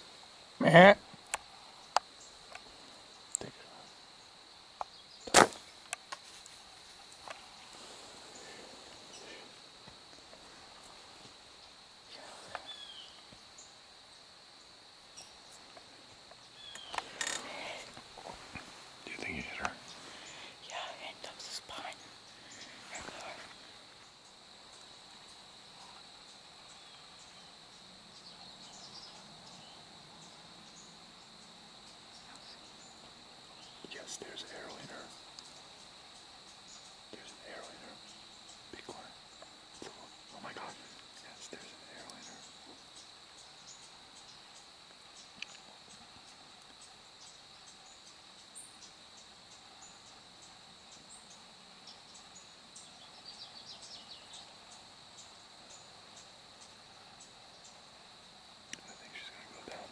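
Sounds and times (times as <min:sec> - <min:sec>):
insect chorus: 0:00.0 - 0:59.9
bowstring snap: 0:05.2 - 0:06.0.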